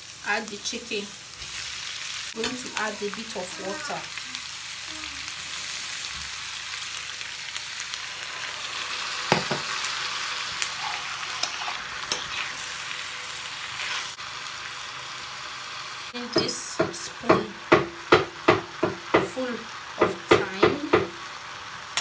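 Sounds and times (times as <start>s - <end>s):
food sizzling in frying pan: 0.0s - 22.0s
metal spoon scraping pan: 10.8s - 12.7s, 13.7s - 14.2s.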